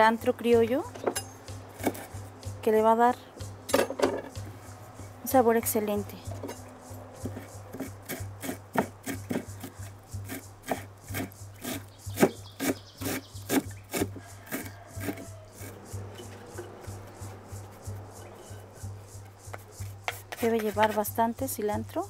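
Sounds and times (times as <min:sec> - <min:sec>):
knife chopping on wooden board: 0:00.9 - 0:02.3, 0:07.2 - 0:17.5, 0:19.5 - 0:21.0.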